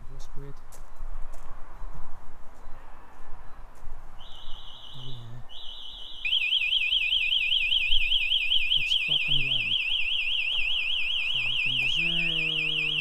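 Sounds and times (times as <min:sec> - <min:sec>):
alarm siren warbling: 0:04.2 - 0:13.0.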